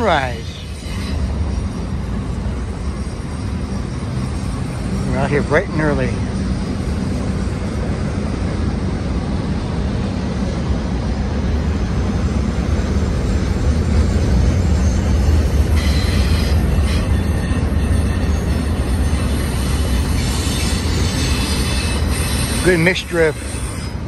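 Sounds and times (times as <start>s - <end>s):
wheels squealing: 0.0s - 7.6s, 13.0s - 24.0s
train wheels rumbling on rail: 0.0s - 24.0s.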